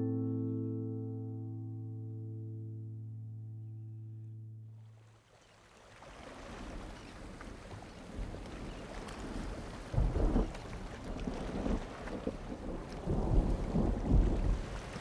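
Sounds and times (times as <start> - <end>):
held music chord: 0.0 - 4.8
wind and sea water rushing: 5.0 - 15.0.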